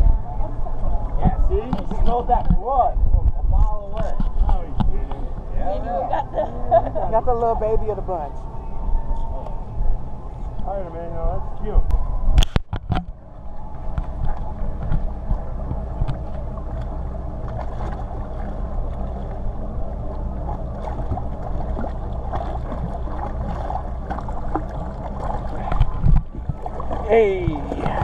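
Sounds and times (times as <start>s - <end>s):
steady low drone: 0.0s - 28.0s
water washing and splashing: 13.8s - 28.0s.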